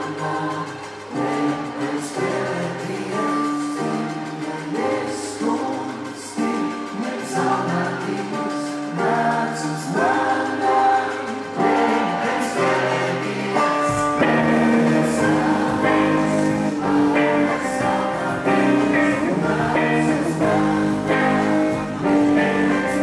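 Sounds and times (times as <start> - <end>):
electric guitar: 0.0 - 23.0
man singing lead: 0.0 - 23.0
bass guitar: 11.4 - 23.0.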